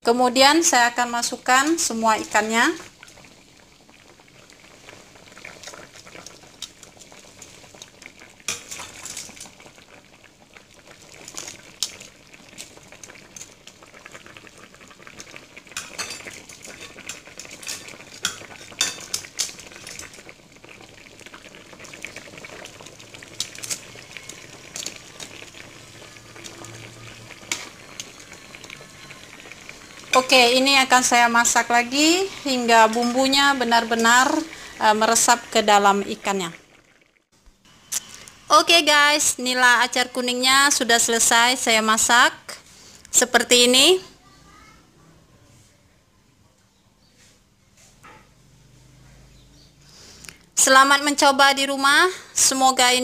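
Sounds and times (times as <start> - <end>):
sauce bubbling: 0.5 - 43.5, 48.6 - 53.0
tongs clacking against pan: 15.8 - 19.6.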